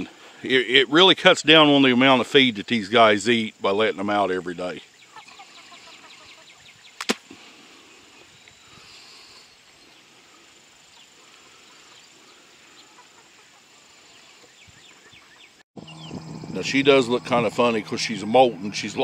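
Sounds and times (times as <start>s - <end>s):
chickens clucking quietly: 5.0s - 15.6s
sharp click: 7.0s - 7.2s.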